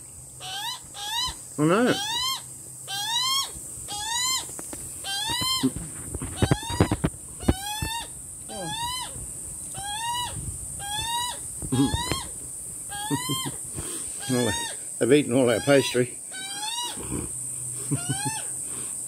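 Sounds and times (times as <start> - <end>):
young magpie begging squawks: 0.4 - 5.6, 7.4 - 9.2, 9.8 - 12.3, 12.9 - 13.6, 14.2 - 14.8, 15.5 - 17.0.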